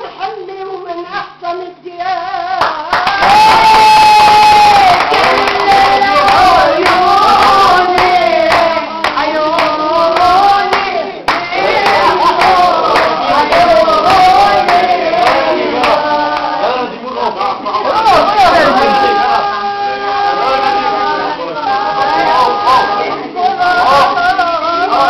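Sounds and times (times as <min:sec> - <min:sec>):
folk singing: 0:00.0 - 0:25.0
hand clapping in rhythm: 0:02.6 - 0:16.6.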